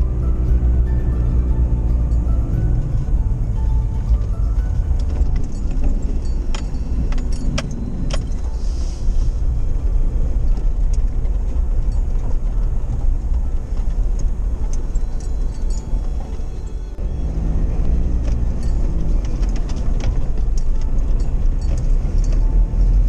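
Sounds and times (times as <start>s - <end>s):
engine and road rumble: 0.0s - 23.0s
light rattles and clicks: 3.7s - 8.6s, 9.7s - 16.8s, 17.7s - 23.0s.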